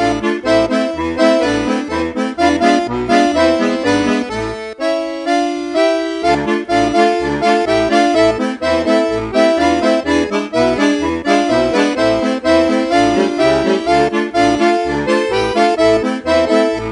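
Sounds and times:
accordion-led music with bass beat: 0.0 - 16.9.

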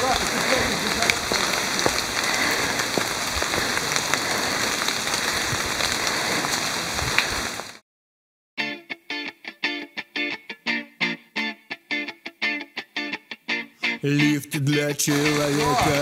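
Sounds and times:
rain falling on forest: 0.0 - 7.8, 14.2 - 16.0
strummed guitar music: 8.6 - 16.0.

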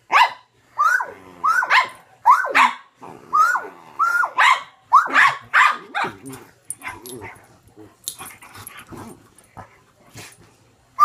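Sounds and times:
dog barking: 0.1 - 2.9, 4.2 - 6.2.

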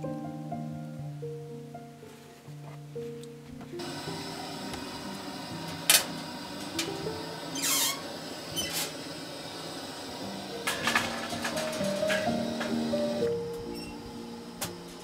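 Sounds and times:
steel door scraping open: 5.7 - 9.1, 10.6 - 15.0.

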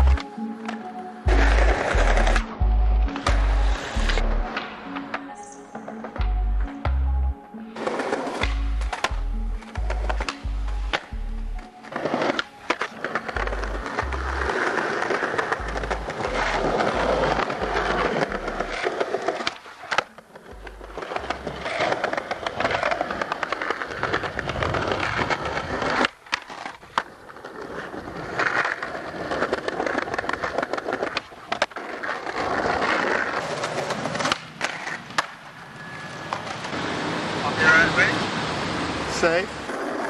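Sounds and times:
low bass music: 0.0 - 0.2, 1.3 - 4.6, 6.2 - 7.5, 8.4 - 11.7, 13.4 - 14.8, 15.5 - 18.8, 20.5 - 21.8
skateboard clacking: 0.0 - 38.1, 38.7 - 40.0
skateboard wheels rolling on paving: 0.0 - 40.0.

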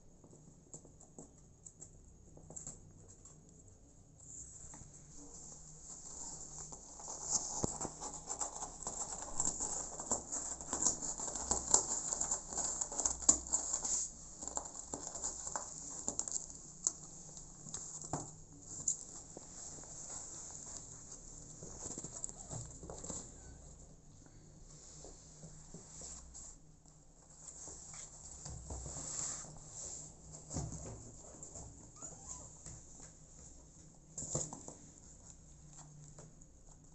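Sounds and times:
cats scratching on cardboard box: 6.2 - 23.4.

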